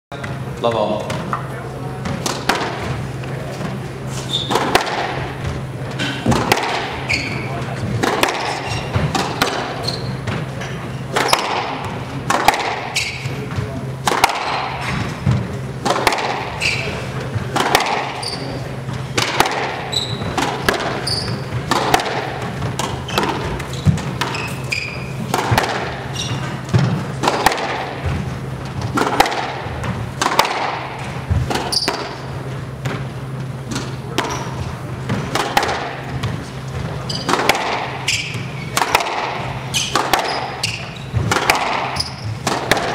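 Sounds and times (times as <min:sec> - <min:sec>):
squash ball cracking off rackets: 0:02.0 - 0:03.8, 0:04.4 - 0:18.5, 0:19.1 - 0:42.9
shoes squeaking on hardwood: 0:04.1 - 0:04.6, 0:07.0 - 0:07.7, 0:08.4 - 0:09.1, 0:09.7 - 0:11.4, 0:16.6 - 0:17.0, 0:19.8 - 0:20.4, 0:21.0 - 0:21.7, 0:22.9 - 0:25.3, 0:26.0 - 0:26.6, 0:31.6 - 0:32.0, 0:36.4 - 0:37.4.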